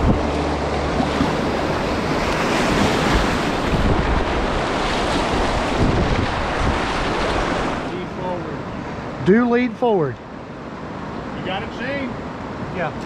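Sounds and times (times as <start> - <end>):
music track: 0.0 - 3.0
wind buffeting microphone: 0.0 - 7.9
whitewater rushing: 0.0 - 13.0.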